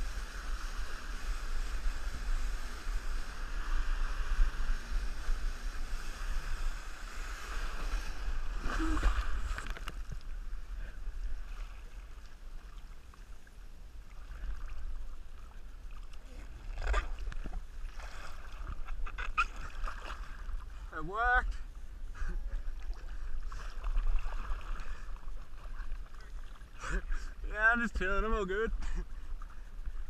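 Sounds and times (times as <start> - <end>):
water rushing under a wakeboard: 0.0 - 30.0
water splash: 3.5 - 10.2.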